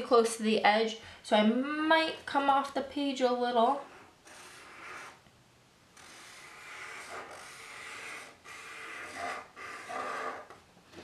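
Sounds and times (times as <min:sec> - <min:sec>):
marker scratching on paper: 0:03.8 - 0:05.2, 0:06.0 - 0:10.5.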